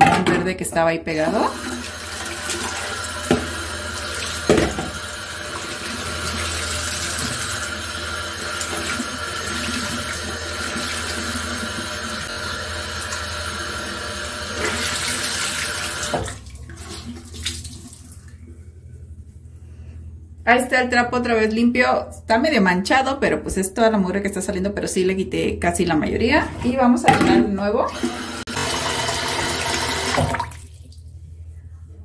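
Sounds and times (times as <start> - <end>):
tap water running into sink: 1.3 - 18.0, 27.9 - 31.0.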